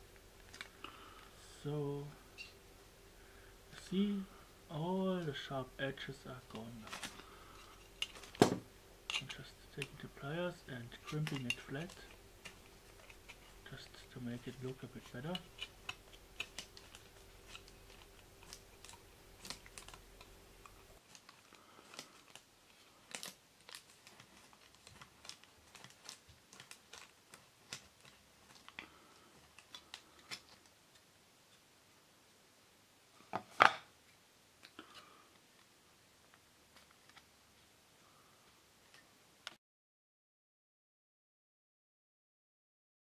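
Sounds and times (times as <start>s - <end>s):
metal clicks and crinkles: 0.4s - 1.0s, 6.5s - 31.1s.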